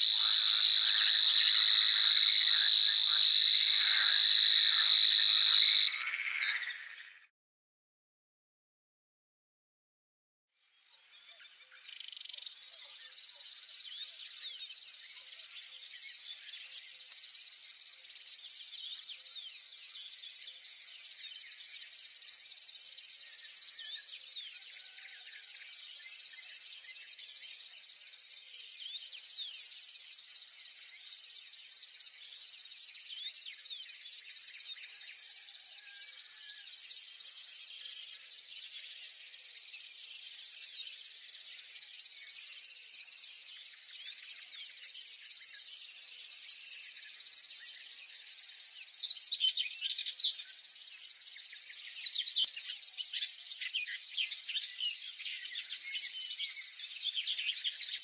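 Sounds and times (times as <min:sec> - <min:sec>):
warbler reeling trill: 0:00.0 - 0:06.9
faint bird chirps: 0:00.0 - 0:07.3, 0:10.5 - 0:58.0.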